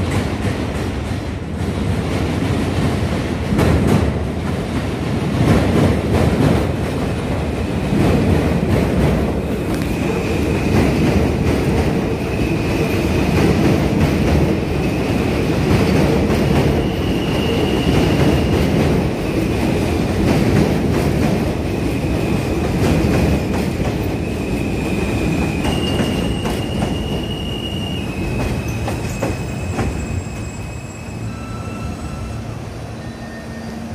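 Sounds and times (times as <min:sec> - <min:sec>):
train wheels rumbling on rail: 0:00.0 - 0:33.9
high-pitched wheel squeal: 0:24.4 - 0:33.9.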